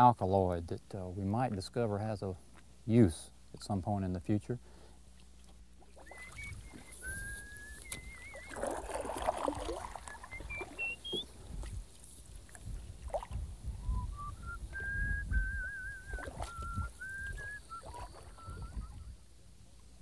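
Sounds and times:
paddle strokes in water: 5.4 - 13.5, 14.8 - 18.9
person whistling: 6.0 - 9.0, 10.0 - 11.3, 13.8 - 19.2.

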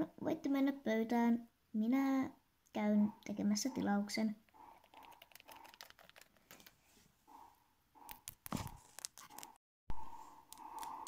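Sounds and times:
plastic toy figures clicking: 10.5 - 11.0.

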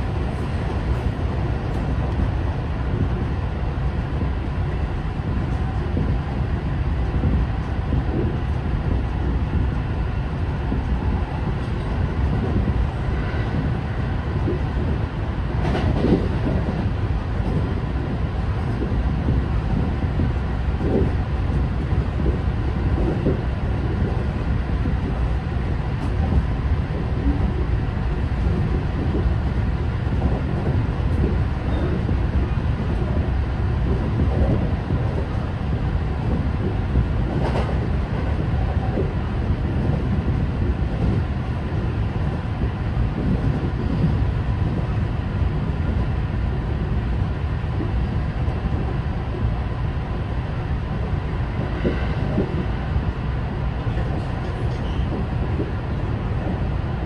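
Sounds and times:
train wheels rumbling on rail: 0.0 - 57.0
track clacks: 10.7 - 49.5.

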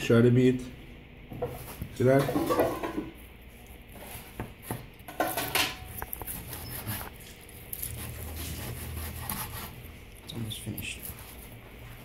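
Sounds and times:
knife scrape: 5.8 - 9.9.

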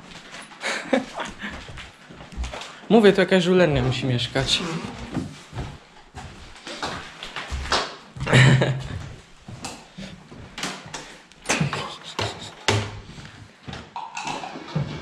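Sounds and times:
people shuffling: 0.0 - 2.6.

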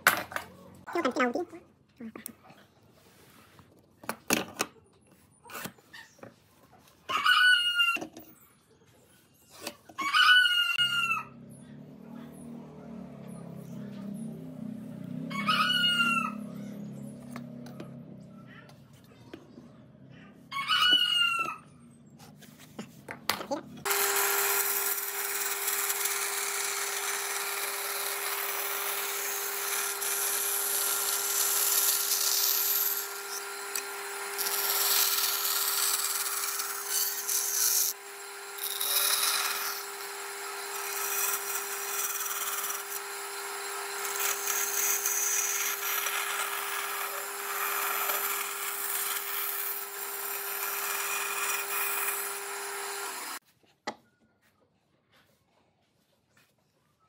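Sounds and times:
band saw cutting wood: 23.8 - 53.4.

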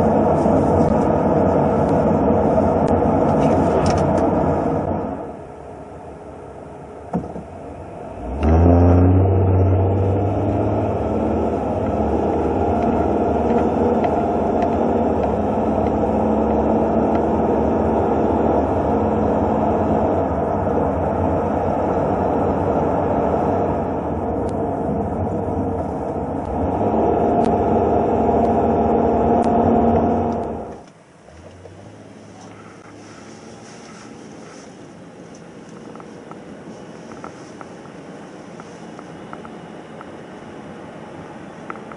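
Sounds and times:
car engine: 0.0 - 41.9
road noise: 0.0 - 41.9.

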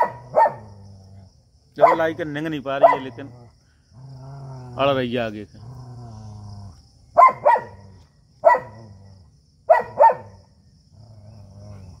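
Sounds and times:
dog barking: 0.0 - 0.7, 1.8 - 2.2, 2.8 - 3.2, 7.2 - 7.8, 8.4 - 8.9, 9.7 - 10.4
dog growling: 0.1 - 1.4, 2.9 - 6.8, 7.7 - 9.4, 10.8 - 12.0.

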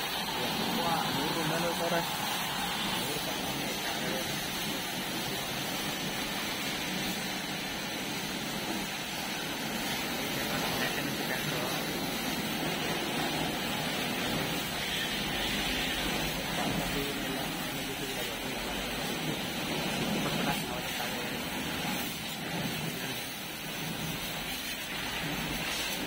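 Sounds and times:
high-pressure water jet spraying: 0.0 - 26.0.

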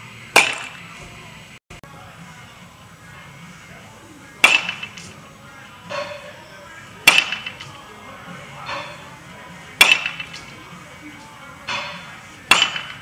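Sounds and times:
baseball bat cracks: 0.4 - 0.9, 4.4 - 5.1, 7.1 - 7.7, 9.8 - 10.5, 12.5 - 13.0.

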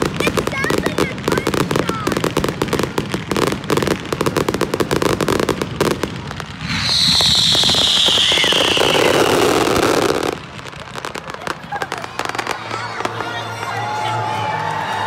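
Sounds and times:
fireworks crackling and popping: 0.0 - 15.0
high steady firework whistle: 6.4 - 10.4.

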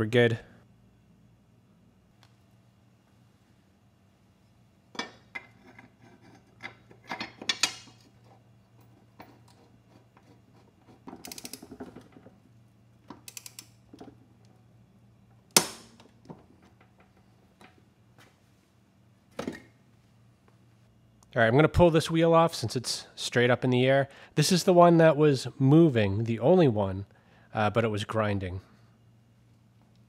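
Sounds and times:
rapid ratchet clicks: 11.2 - 11.7, 13.2 - 13.8.

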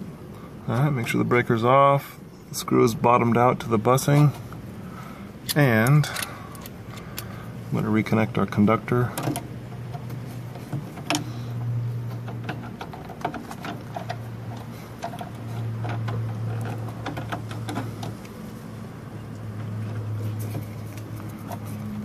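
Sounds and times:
screwdriver metal clicks and scrapes: 5.4 - 7.3.

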